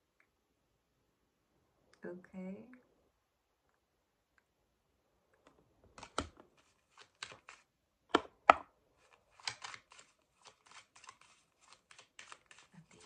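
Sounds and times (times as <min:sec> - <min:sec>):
sharp card snaps and taps: 0:05.4 - 0:08.7, 0:09.4 - 0:13.0
cards being shuffled: 0:05.4 - 0:13.0
card flicks: 0:06.0 - 0:08.7.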